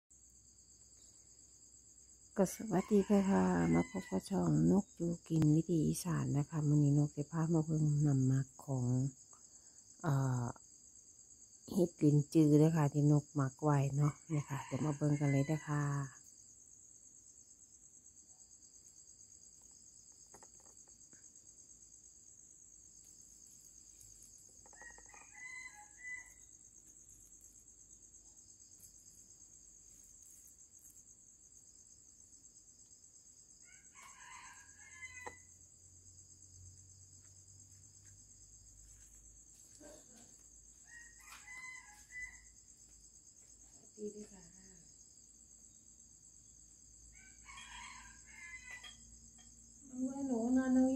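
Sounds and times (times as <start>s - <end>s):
insects chirring: 0.1s - 50.9s
rooster crowing faintly: 23.7s - 27.2s, 33.6s - 35.6s, 39.7s - 42.8s, 47.1s - 49.8s.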